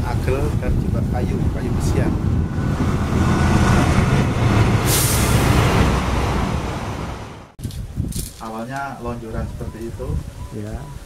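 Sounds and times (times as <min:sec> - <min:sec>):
heavy vehicle rumbling past: 0:00.5 - 0:07.6.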